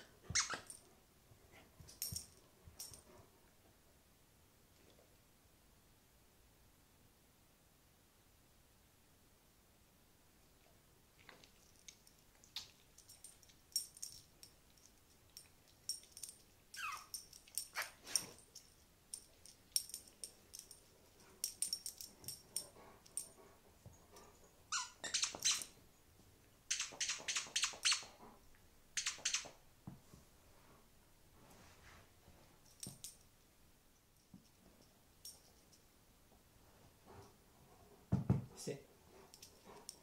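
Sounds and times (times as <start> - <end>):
dog whining: 0.3 - 0.8, 16.7 - 18.0, 24.4 - 25.8.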